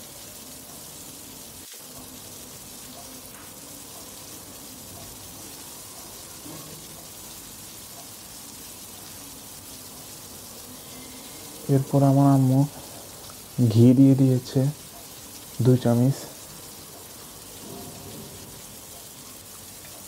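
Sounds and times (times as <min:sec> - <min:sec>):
prawns sizzling in hot oil: 0:00.0 - 0:20.0.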